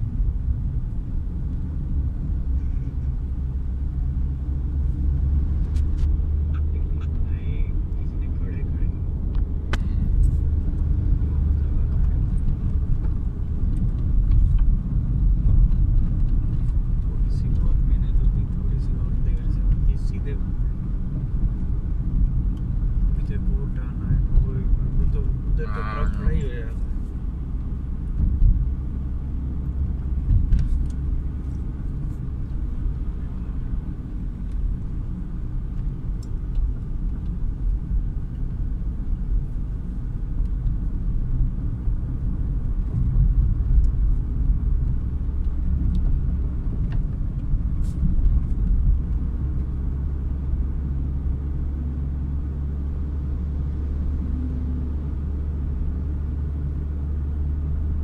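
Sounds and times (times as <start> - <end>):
tyre and engine rumble in car: 0.0 - 58.0.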